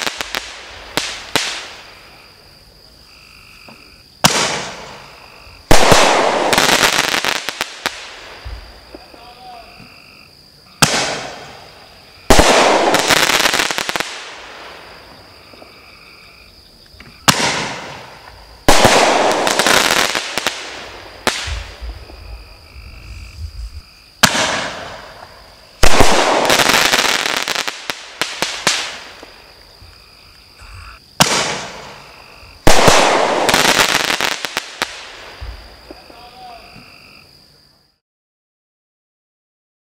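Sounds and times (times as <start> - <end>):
firework shell burst crackling: 24.2 - 29.3.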